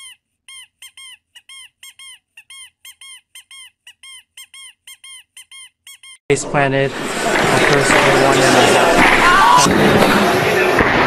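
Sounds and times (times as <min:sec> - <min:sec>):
exercise machine squeaking: 0:00.0 - 0:06.2.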